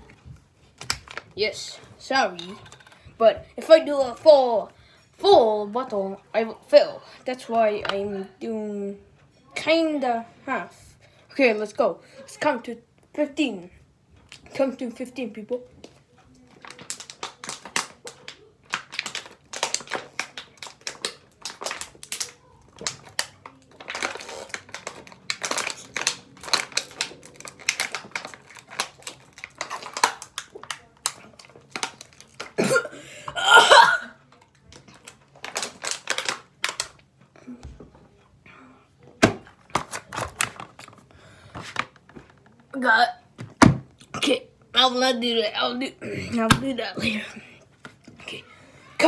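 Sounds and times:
plastic bottle crinkling: 0:15.8 - 0:32.9, 0:34.3 - 0:37.1, 0:39.2 - 0:42.6.

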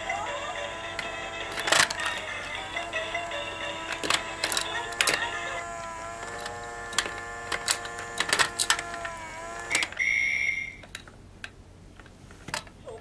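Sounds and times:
small electric motor whirring: 0:00.0 - 0:10.1
plastic clicks and clacks: 0:00.7 - 0:10.0, 0:10.8 - 0:12.8.

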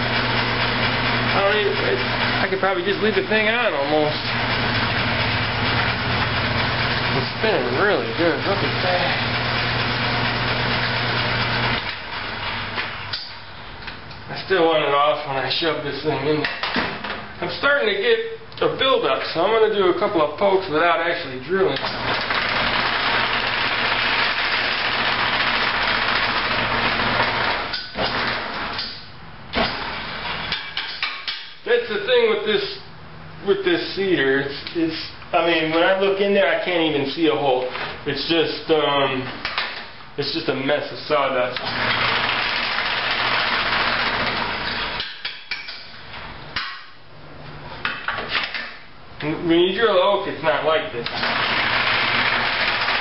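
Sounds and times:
wood lathe motor hum: 0:00.0 - 0:12.8, 0:21.9 - 0:28.7, 0:41.6 - 0:45.0, 0:51.1 - 0:53.0.

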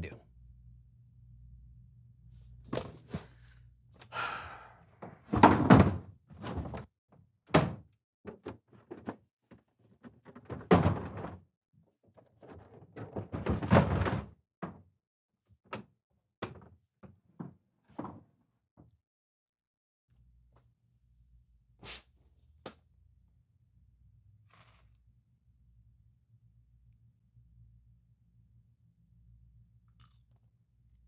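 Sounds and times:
television thunking into trash bin: 0:05.3 - 0:06.8, 0:10.4 - 0:11.4.

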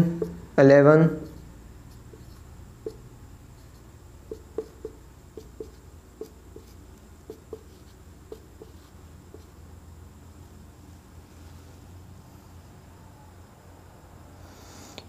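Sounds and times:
marker squeaking on whiteboard: 0:00.0 - 0:09.6.

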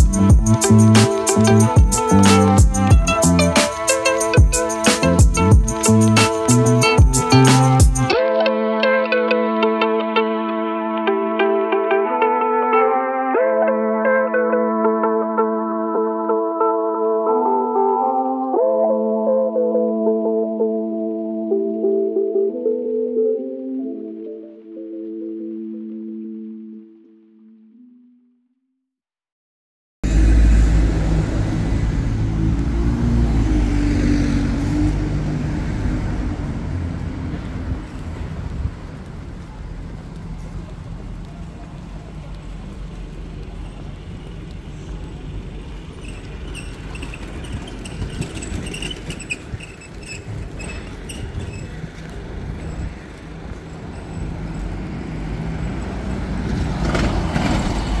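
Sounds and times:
traffic engines rumbling: 0:00.0 - 0:08.2, 0:30.0 - 0:58.0.

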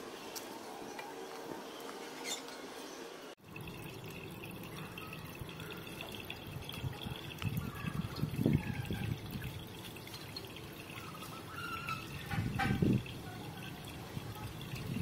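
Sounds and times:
water pouring and splashing: 0:03.4 - 0:15.0.

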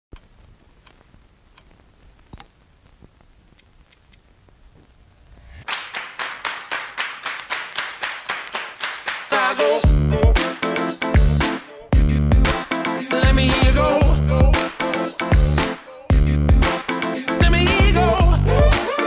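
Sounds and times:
faint hiss: 0:00.1 - 0:05.8
sharp clicks: 0:03.5 - 0:04.3
rising swell: 0:05.1 - 0:05.7
upbeat soundtrack with clap beat: 0:05.6 - 0:19.0.

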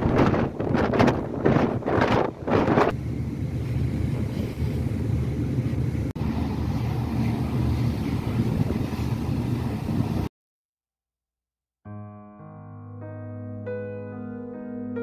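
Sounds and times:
ferry engines rumbling: 0:00.0 - 0:10.3
wind on microphone: 0:00.0 - 0:10.3.

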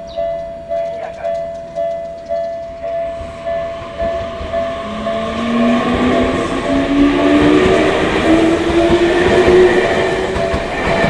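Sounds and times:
level-crossing bell ringing: 0:00.0 - 0:07.1
train running noise: 0:00.0 - 0:11.0.

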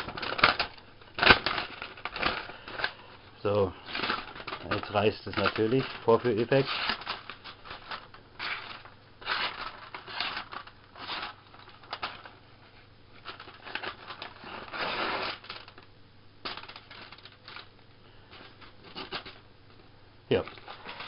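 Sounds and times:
paper envelope tearing: 0:00.0 - 0:03.0, 0:03.8 - 0:12.3, 0:13.3 - 0:15.8.

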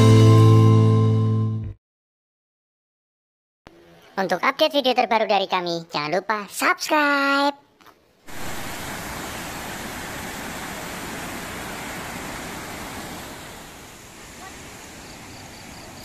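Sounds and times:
river water rushing over weir: 0:08.3 - 0:16.0.

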